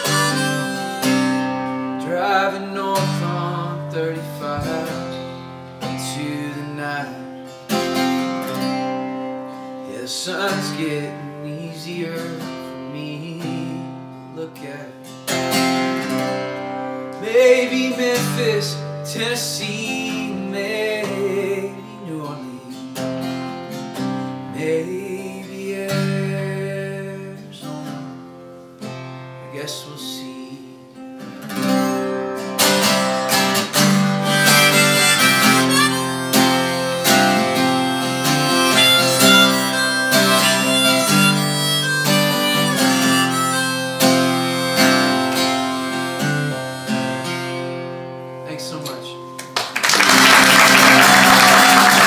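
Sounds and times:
harmonica: 0.0s - 11.0s, 31.2s - 48.8s
acoustic guitar: 0.0s - 52.0s.

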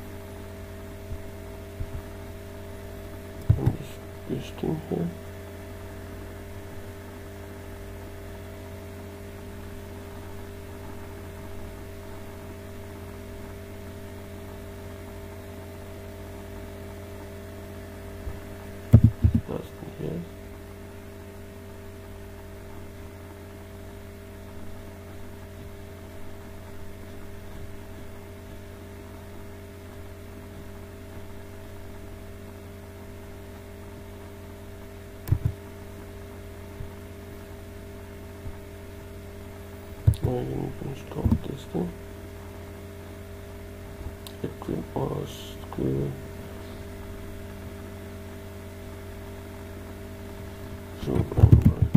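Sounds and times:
electrical mains hum: 0.0s - 51.9s
low knocks: 19.0s - 19.5s.

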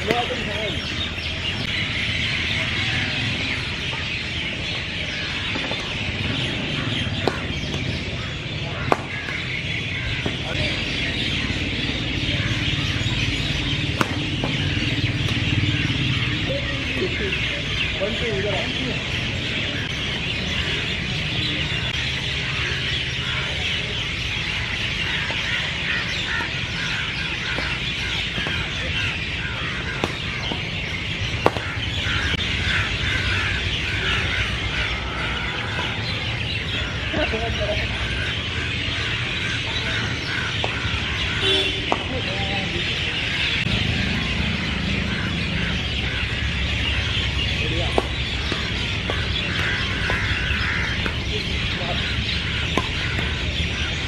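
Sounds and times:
chatter of many birds: 0.0s - 54.0s
racket striking shuttlecock: 8.8s - 9.5s, 13.9s - 14.6s, 15.2s - 15.4s, 30.0s - 30.7s, 31.4s - 31.7s, 47.9s - 51.3s, 52.6s - 53.4s.

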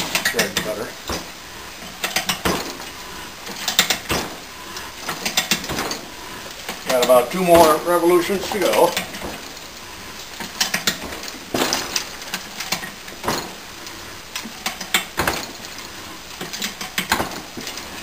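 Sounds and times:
metal ratchet clicks and knocks: 0.0s - 2.8s, 3.5s - 4.2s, 14.4s - 15.6s.

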